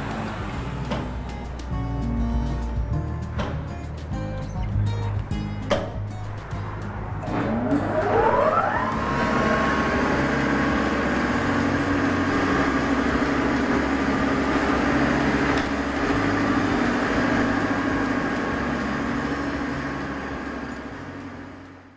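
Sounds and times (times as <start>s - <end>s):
drill motor whining: 7.3s - 21.4s.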